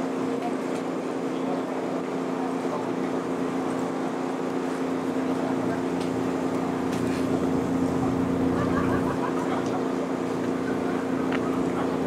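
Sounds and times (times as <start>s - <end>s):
engine idling: 2.8s - 12.0s
faint voices: 4.9s - 12.0s.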